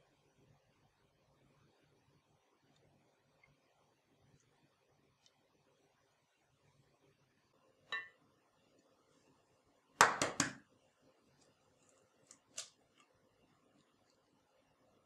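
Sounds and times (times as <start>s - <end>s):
egg knocking on glass bowl: 10.0s - 10.6s.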